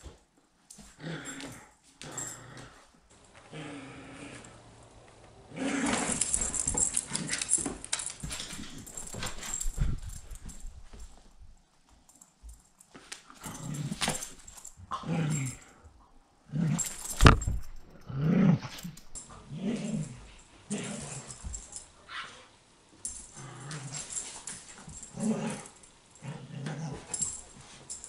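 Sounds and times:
dog growling: 3.4 - 4.8, 5.5 - 7.5.

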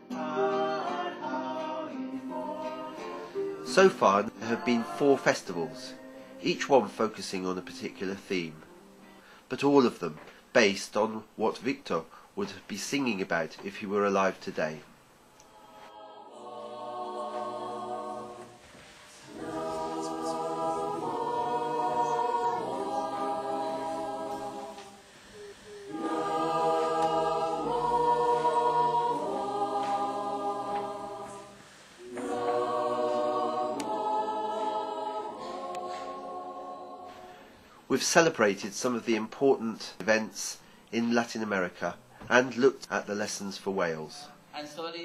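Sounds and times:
choir singing unaccompanied: 0.0 - 8.6, 15.4 - 39.2.

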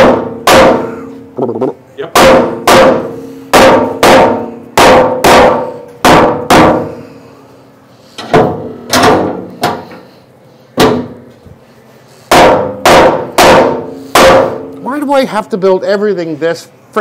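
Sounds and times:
hammer striking sheet metal: 0.0 - 1.0, 2.1 - 7.0, 12.3 - 14.7.

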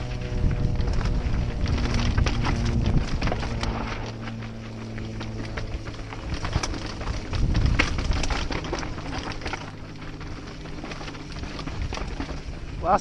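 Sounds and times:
wind on microphone: 0.0 - 9.0
bike rattling over rocks: 0.0 - 13.0
tyre noise on dirt: 0.0 - 13.0.

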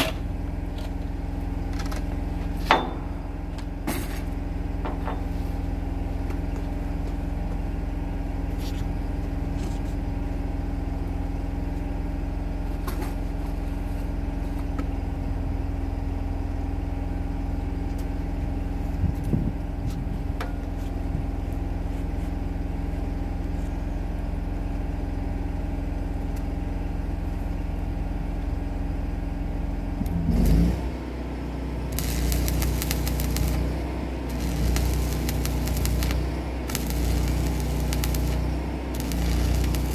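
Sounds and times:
welding machine engine running: 31.6 - 39.9
welding arc crackling hiss: 31.9 - 39.9.

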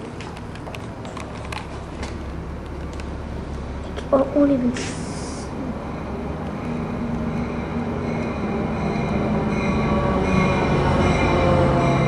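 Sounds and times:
diesel locomotive engine drone: 0.0 - 12.0
wheels and brakes squealing: 5.4 - 12.0.

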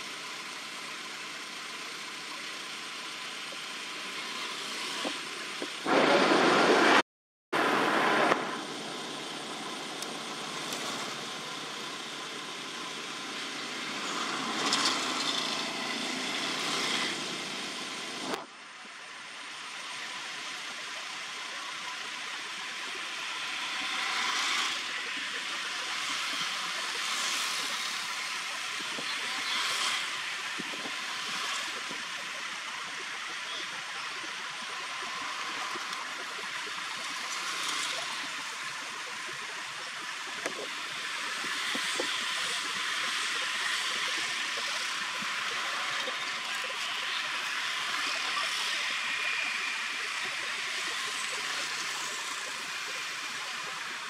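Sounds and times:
steady outdoor hiss: 0.0 - 7.0, 7.6 - 54.0.

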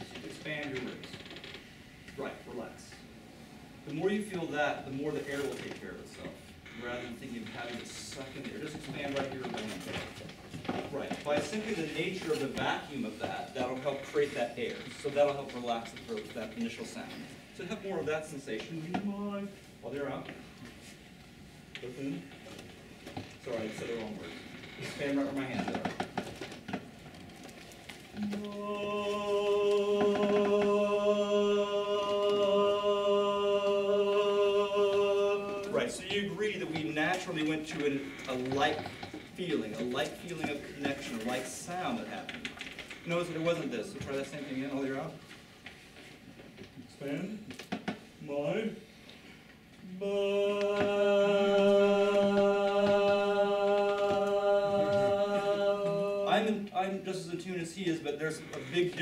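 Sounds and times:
person singing a sustained note: 28.2 - 35.8, 49.8 - 56.7
men's chorus holding a chord: 28.4 - 36.2, 50.0 - 56.7.

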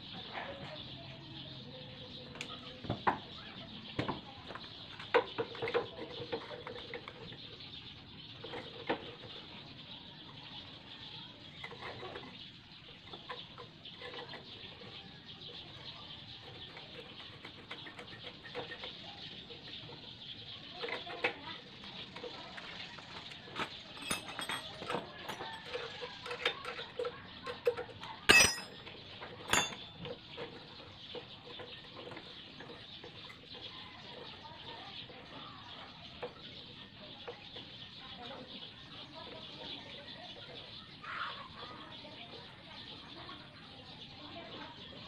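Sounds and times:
metal clinks and knocks: 23.6 - 30.2.

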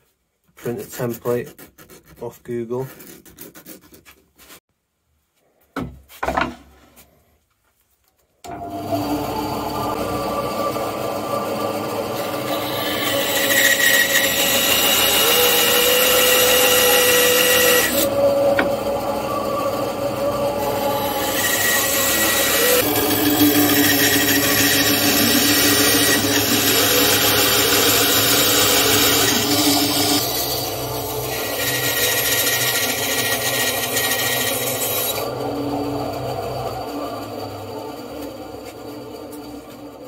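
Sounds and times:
saw blade rasping wood: 0.6 - 4.6, 12.1 - 35.4
band saw motor hum: 8.5 - 40.0.

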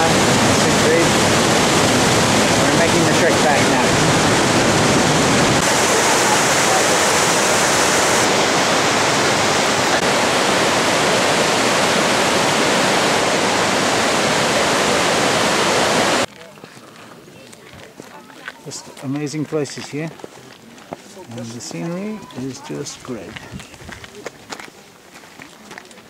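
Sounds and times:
river rushing over rocks: 0.0 - 16.3.

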